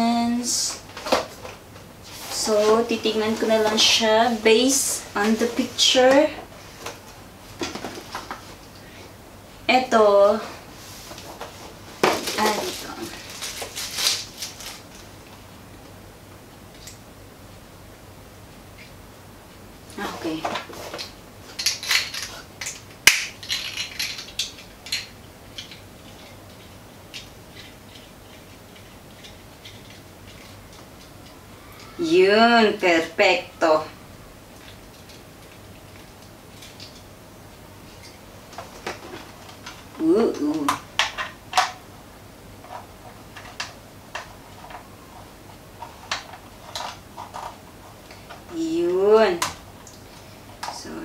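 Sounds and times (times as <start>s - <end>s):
plastic clicks and rattles: 20.9s - 31.1s.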